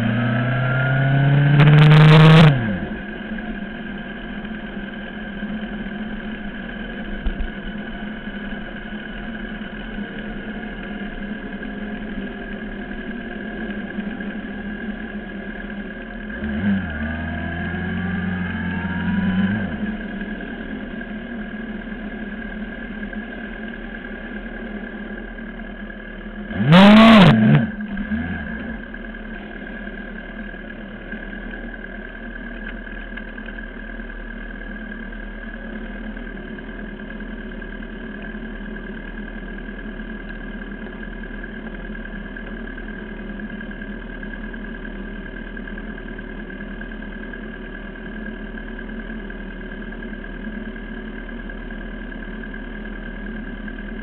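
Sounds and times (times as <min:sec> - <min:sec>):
motorcycle engine idling: 0:00.0 - 0:54.0.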